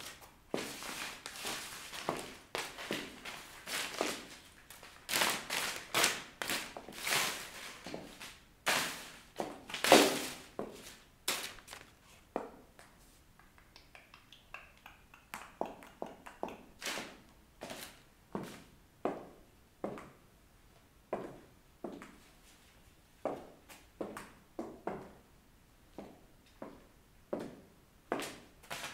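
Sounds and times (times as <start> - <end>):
paper crunching under shoes: 0.0 - 12.2
high heels tapping: 15.3 - 16.8.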